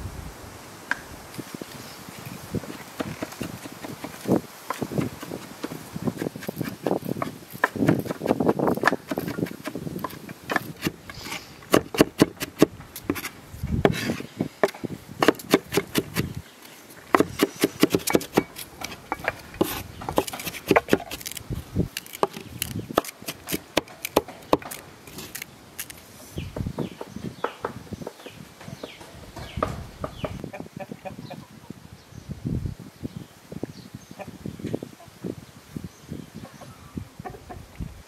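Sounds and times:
knife chopping on wooden board: 0:03.0 - 0:16.3, 0:17.1 - 0:21.4, 0:22.0 - 0:25.4.

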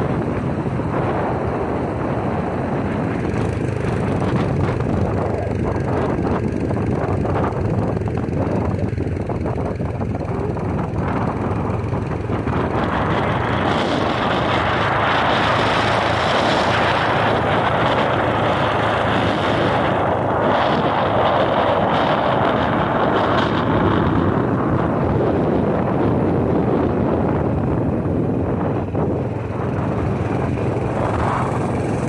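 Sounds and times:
motorcycle engine running: 0:00.0 - 0:32.0
wind over microphone: 0:00.0 - 0:32.0.

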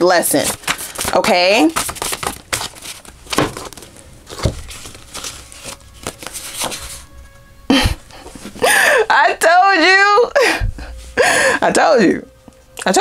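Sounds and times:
paper rustling: 0:00.3 - 0:07.1
paper cards tapping: 0:00.4 - 0:07.0.

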